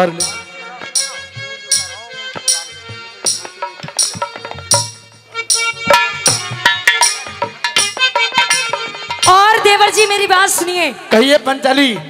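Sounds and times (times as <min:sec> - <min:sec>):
held melody line: 0:00.0 - 0:11.6
hand drum beating: 0:00.0 - 0:12.0
jingling percussion: 0:00.0 - 0:12.0.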